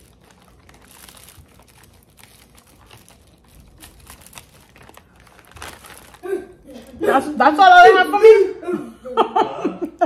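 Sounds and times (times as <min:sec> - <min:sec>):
packaging crinkling: 0:00.0 - 0:07.1.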